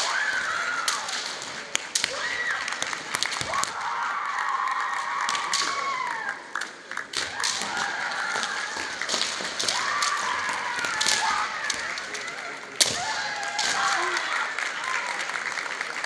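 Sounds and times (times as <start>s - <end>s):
bamboo swords clacking: 5.3s - 6.0s, 7.1s - 14.2s.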